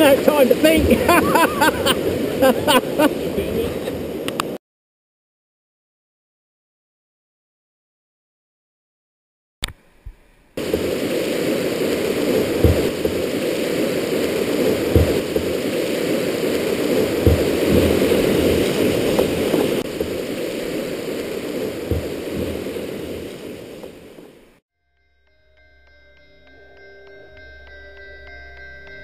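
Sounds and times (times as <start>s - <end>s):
river rapid rushing: 0.0s - 4.6s, 10.6s - 24.6s
dull low thumps: 12.4s - 13.3s, 14.7s - 15.6s, 17.0s - 20.4s, 21.6s - 22.7s.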